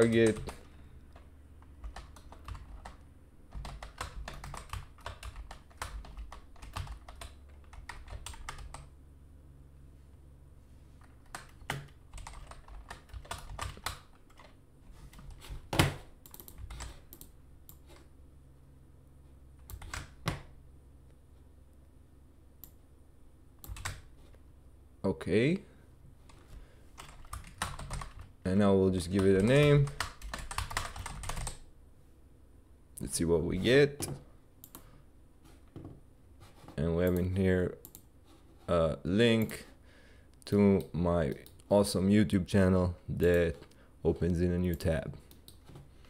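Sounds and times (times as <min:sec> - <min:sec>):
typing on computer keyboard: 0:00.0 - 0:00.7, 0:01.8 - 0:08.9, 0:11.0 - 0:14.6, 0:16.3 - 0:17.3, 0:19.6 - 0:20.4, 0:23.6 - 0:24.0, 0:27.0 - 0:28.3, 0:29.2 - 0:31.6.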